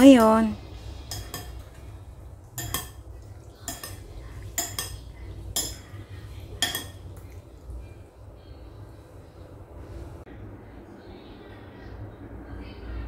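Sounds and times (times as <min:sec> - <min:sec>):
metal utensil clinking on cookware: 0:00.0 - 0:02.0, 0:02.6 - 0:07.4.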